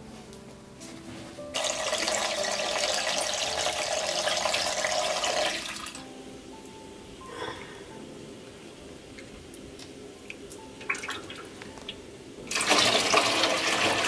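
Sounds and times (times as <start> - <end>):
tap water running into metal bowl: 1.6 - 6.0, 12.5 - 14.0.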